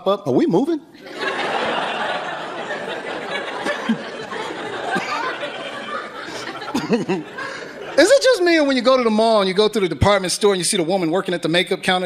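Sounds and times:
audience laughing: 0:01.0 - 0:08.8.

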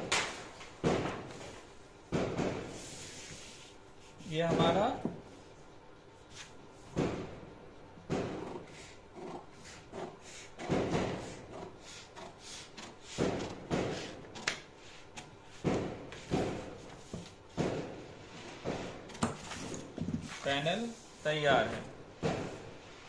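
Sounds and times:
knocks and thumps on table: 0:15.6 - 0:18.0, 0:22.2 - 0:22.6.

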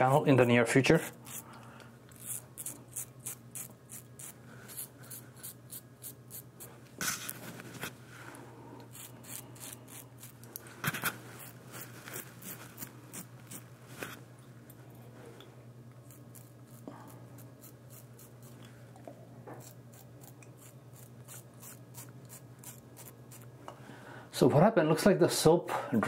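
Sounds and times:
razor scraping stubble: 0:00.2 - 0:07.9, 0:08.8 - 0:14.2, 0:16.0 - 0:18.7, 0:19.5 - 0:23.5.

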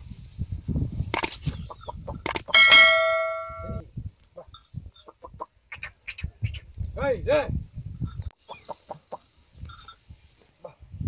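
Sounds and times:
mouse clicks: 0:01.2 - 0:01.4, 0:02.2 - 0:02.5
bright bell ding: 0:02.6 - 0:03.8
clucking calls: 0:04.4 - 0:06.7, 0:08.2 - 0:09.3.

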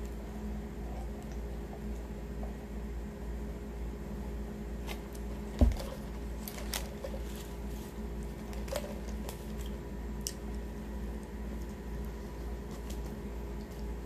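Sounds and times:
steady low hum: 0:00.0 - 0:14.0
paper wrappers crinkling: 0:05.6 - 0:09.8.

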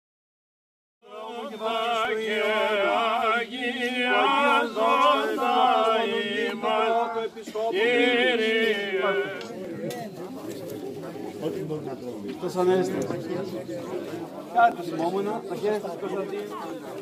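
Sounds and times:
men chanting: 0:01.0 - 0:09.6.

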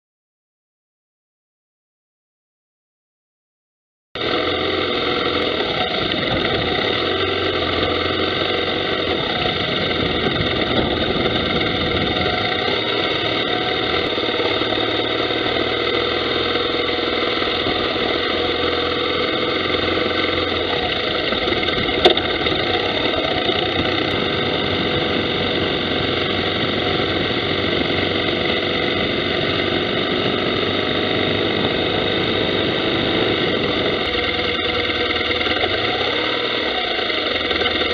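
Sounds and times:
motorcycle engine running: 0:04.2 - 0:37.9
wind noise: 0:05.7 - 0:07.0, 0:08.9 - 0:14.5, 0:20.7 - 0:36.0.

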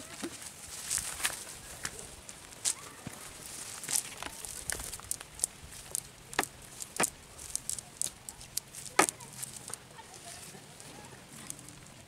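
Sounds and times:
net mesh rustling: 0:03.3 - 0:10.6
sharp clicks and crackles: 0:03.8 - 0:09.8.

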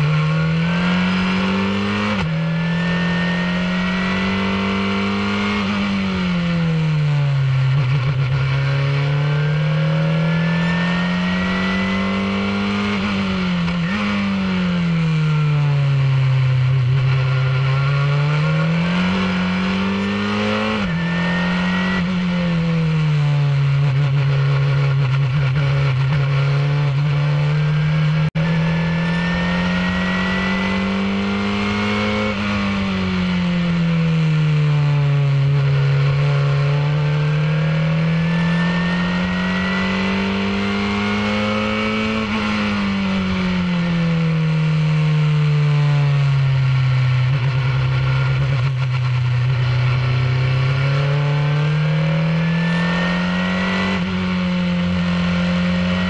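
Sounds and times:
race car engine revving: 0:00.0 - 0:06.4, 0:23.5 - 0:33.5, 0:35.4 - 0:44.0, 0:47.0 - 0:56.0.

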